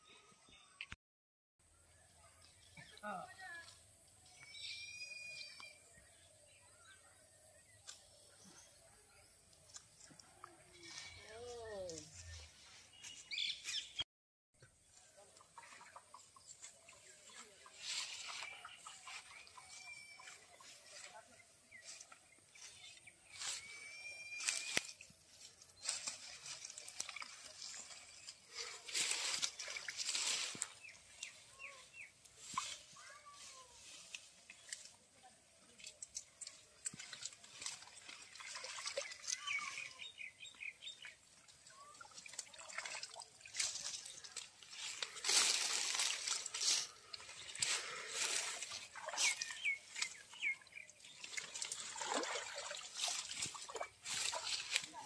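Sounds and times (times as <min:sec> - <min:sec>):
birds chirping: 0:10.8 - 0:14.0, 0:14.7 - 0:33.3, 0:35.6 - 0:42.1, 0:43.4 - 0:52.2
leaves rustling and crunching: 0:16.6 - 0:21.2, 0:21.8 - 0:35.1, 0:43.2 - 0:55.0
water splashing: 0:25.8 - 0:31.6, 0:35.8 - 0:40.2, 0:40.8 - 0:54.9.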